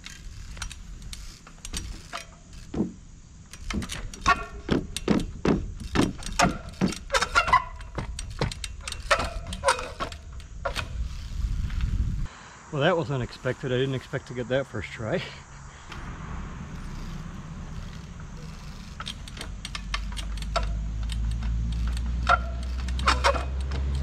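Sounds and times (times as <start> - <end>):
bike tyres knocking on wooden rails: 1.5 - 11.0, 16.8 - 24.0.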